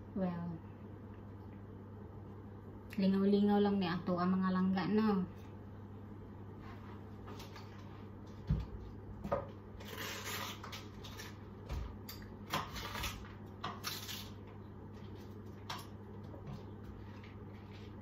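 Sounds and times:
cabbage leaves tearing and rustling: 0:09.8 - 0:11.4, 0:12.7 - 0:14.4.

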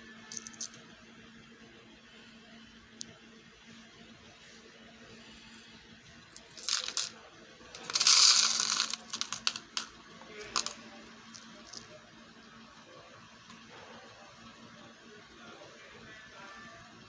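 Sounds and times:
metal charms clinking and rattling: 0:00.3 - 0:00.8, 0:07.8 - 0:10.7.

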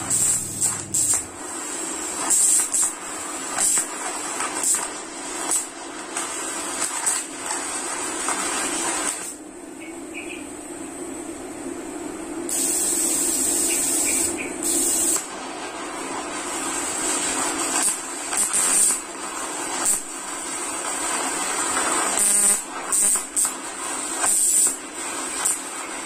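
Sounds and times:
welding arc hissing and buzzing: 0:00.0 - 0:09.4, 0:12.5 - 0:26.0.

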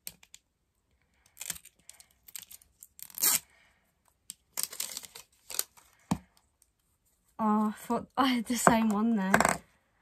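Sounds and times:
plastic packaging tearing and crinkling: 0:01.3 - 0:03.5, 0:04.5 - 0:05.8.

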